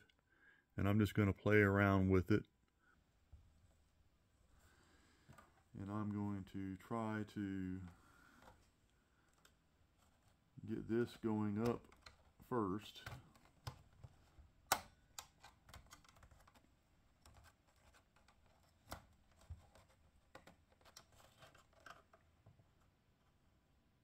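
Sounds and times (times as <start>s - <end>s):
plastic clips clicking and scraping: 11.0s - 22.4s.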